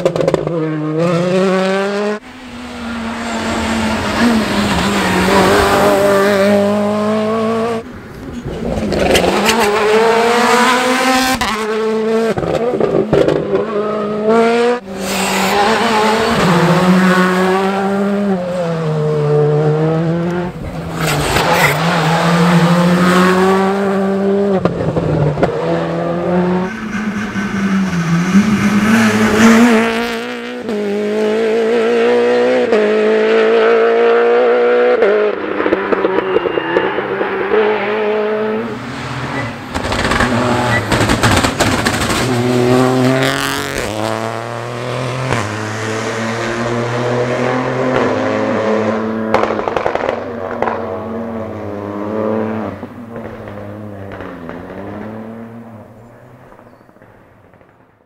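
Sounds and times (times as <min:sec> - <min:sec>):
rally car engines revving: 0:00.0 - 0:57.6.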